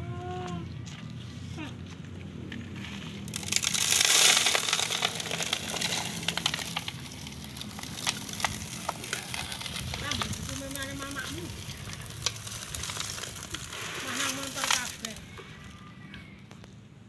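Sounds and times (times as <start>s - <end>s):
sand pouring from a bucket: 2.7s - 15.7s
sand grains ticking on plastic: 3.0s - 15.3s.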